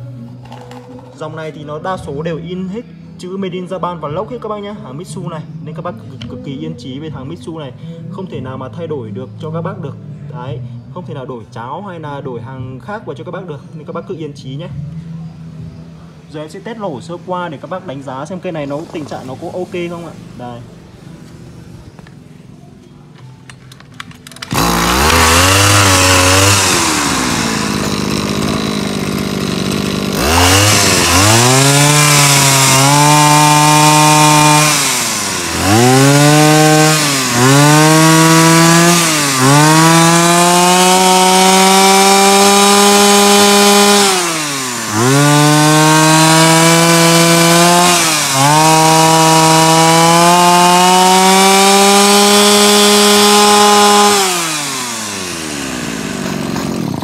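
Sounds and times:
brush cutter engine revving: 24.0s - 57.0s.

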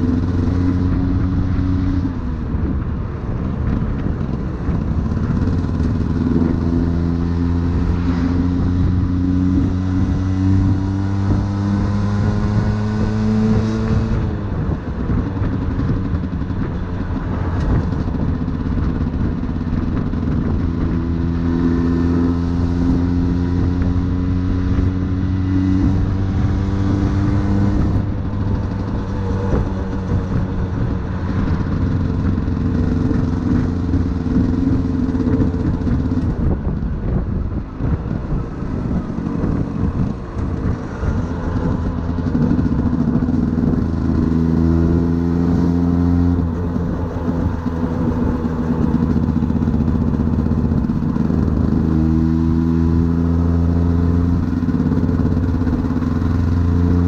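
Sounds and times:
motorcycle engine revving: 0.0s - 57.0s
wind and road noise: 0.0s - 57.0s.

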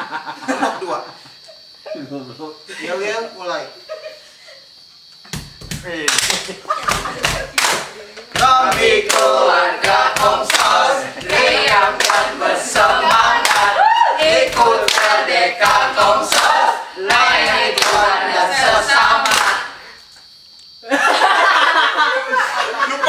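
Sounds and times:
hands clapping rhythmically: 5.3s - 19.8s
young voices singing a chant: 7.9s - 20.0s.

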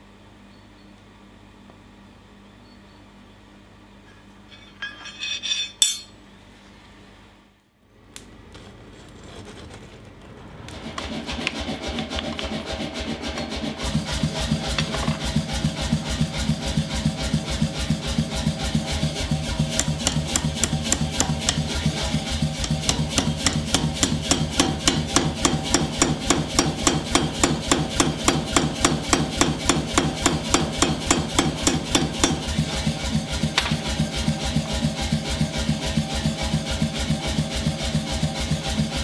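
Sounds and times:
metal scrape: 4.4s - 6.1s
power hammer pounding steel: 18.1s - 34.3s.

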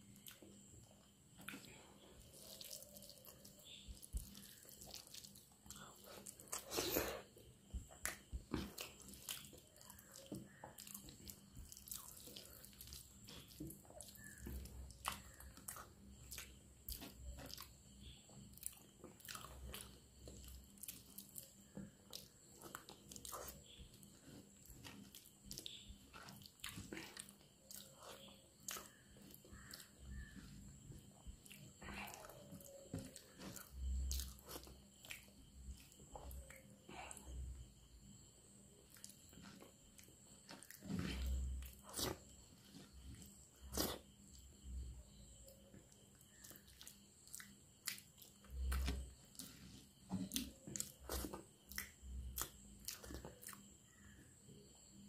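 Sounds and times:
person chewing with mouth smacks: 1.3s - 37.4s, 38.9s - 44.4s, 45.8s - 53.7s
hand squishing rice: 1.3s - 37.9s.

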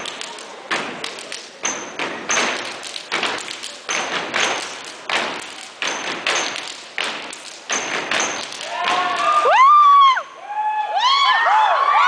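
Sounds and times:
hands clapping: 0.0s - 9.5s
feet stomping: 0.0s - 9.6s.

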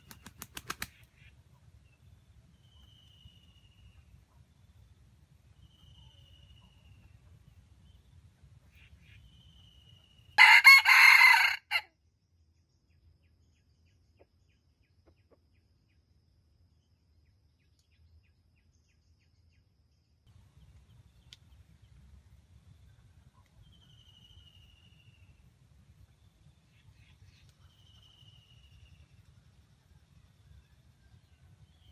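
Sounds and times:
rooster crowing: 10.4s - 11.9s.

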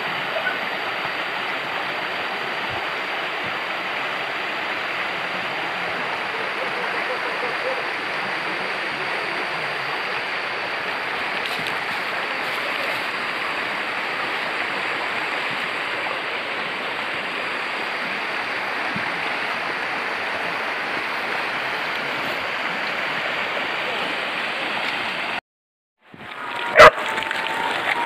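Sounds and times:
river rushing over stones: 0.0s - 25.4s, 26.1s - 28.0s.

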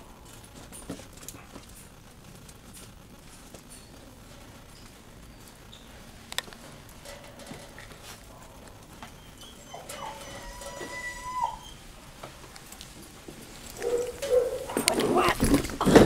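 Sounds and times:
faint scuffling: 2.5s - 16.0s
puppies whimpering: 8.5s - 11.8s.

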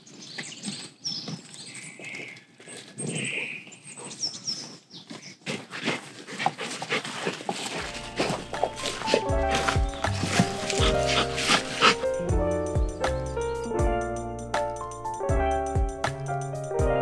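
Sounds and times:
birds chirping: 0.0s - 5.4s, 7.7s - 15.1s
background music: 7.8s - 17.0s.

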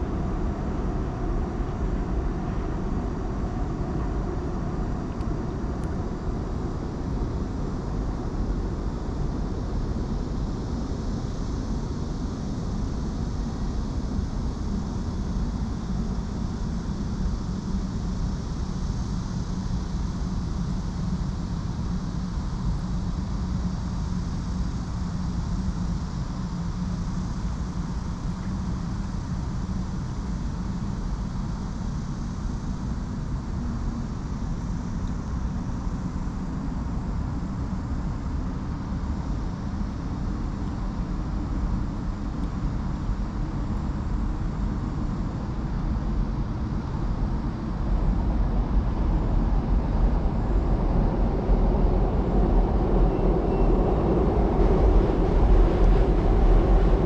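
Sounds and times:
low hum: 49.1s - 57.0s.

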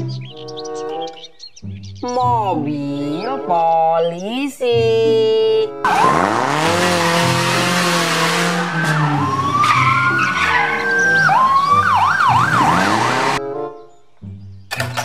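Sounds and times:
passing cars rushing: 5.8s - 13.4s
police car siren: 5.9s - 13.4s.

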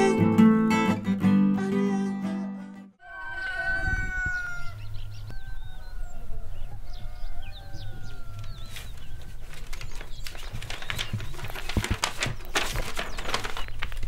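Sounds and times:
rooster crowing: 3.0s - 9.4s
small birds chirping: 4.1s - 14.0s
paper rustling and tearing: 8.6s - 14.0s.

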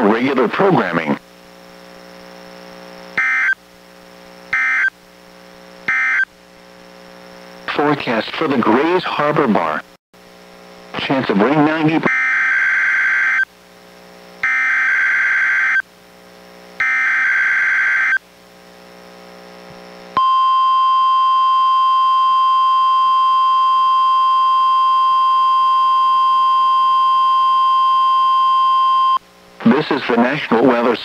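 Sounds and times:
steady alarm tone: 3.2s - 3.6s, 4.5s - 5.0s, 5.9s - 6.3s, 11.8s - 13.5s, 14.4s - 15.9s, 16.8s - 18.2s, 20.2s - 29.2s.

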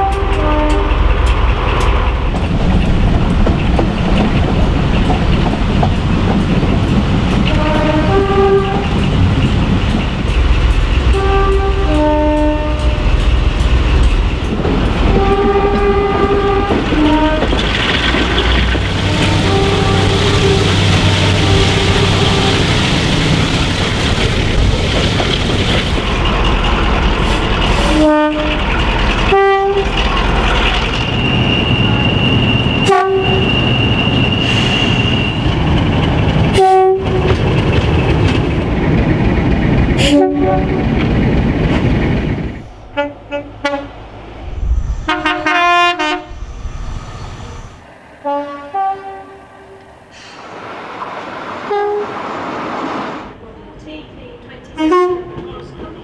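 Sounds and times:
two-tone horn blasts: 0.0s - 0.9s, 7.5s - 9.0s, 11.1s - 13.3s, 15.1s - 17.5s, 19.0s - 22.7s, 27.8s - 28.6s, 29.3s - 29.9s, 32.7s - 33.7s, 36.5s - 37.3s, 40.0s - 40.7s, 42.9s - 44.0s, 45.0s - 46.4s, 48.2s - 49.8s, 51.7s - 52.1s, 54.8s - 55.4s
train horn blasts: 0.0s - 1.0s, 7.5s - 9.0s, 11.1s - 13.3s, 15.1s - 17.5s, 19.0s - 22.8s, 27.8s - 28.6s, 29.3s - 29.9s, 32.8s - 33.6s, 36.5s - 37.4s, 40.0s - 40.8s, 42.9s - 44.0s, 45.0s - 46.4s, 48.2s - 49.8s, 51.7s - 52.2s, 54.8s - 55.5s
train rumbling through tunnel: 0.0s - 56.0s.

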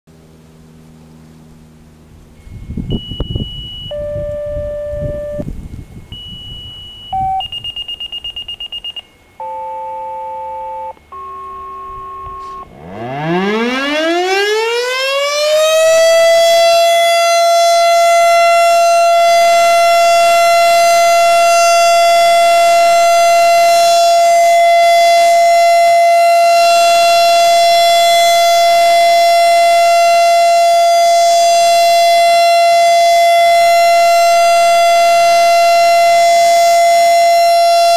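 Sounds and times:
fire siren wailing: 2.2s - 37.9s
fast-pulsing high beep: 2.4s - 12.7s
paired alert tones: 3.0s - 12.7s.

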